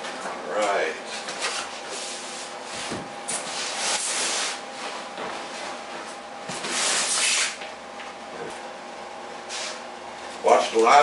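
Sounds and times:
cardboard scraping on styrofoam: 0:03.4 - 0:04.8, 0:06.6 - 0:07.6.

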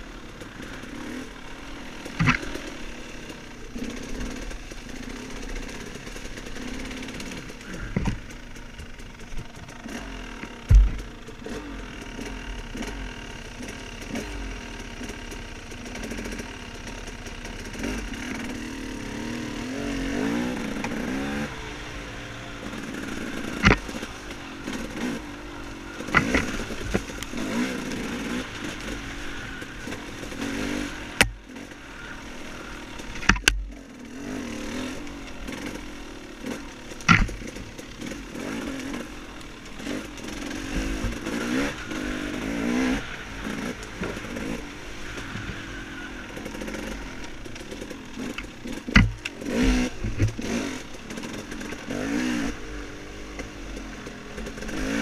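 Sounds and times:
dirt bike engine revving: 0:00.0 - 0:55.0
sharp knocks and clatters: 0:10.7 - 0:11.2, 0:37.0 - 0:37.6, 0:47.6 - 0:50.6.

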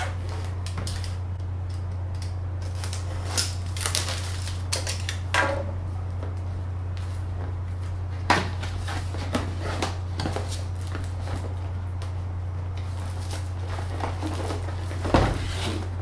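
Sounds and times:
steady low hum: 0:00.0 - 0:16.0
plastic shrink-wrap crinkling: 0:02.6 - 0:05.3, 0:12.8 - 0:15.1.

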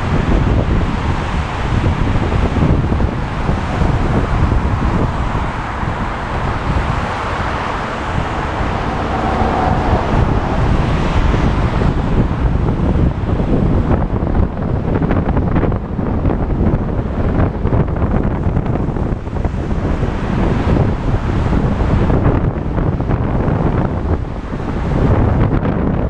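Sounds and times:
tyre and road noise: 0:00.0 - 0:26.0
wind rushing over microphone: 0:00.0 - 0:26.0.

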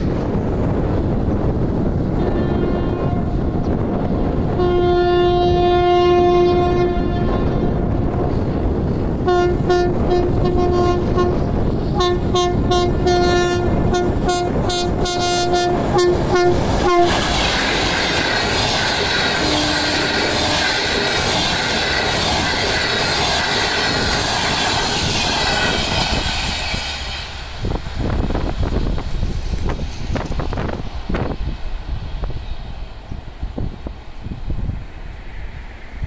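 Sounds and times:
train wheels rushing on rail: 0:00.0 - 0:36.0
locomotive air horn blasts: 0:02.2 - 0:03.4, 0:04.6 - 0:07.8, 0:09.2 - 0:17.2, 0:19.4 - 0:20.9.

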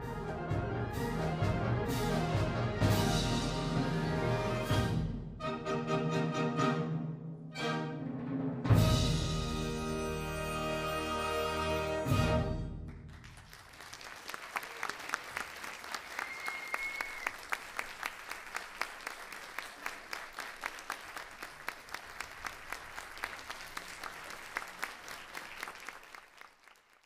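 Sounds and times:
audience applauding: 0:12.9 - 0:27.0.

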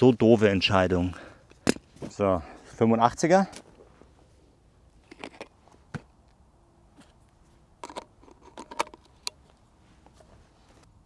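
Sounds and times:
camera lens clicks and rattles: 0:05.0 - 0:06.1, 0:07.8 - 0:09.6.

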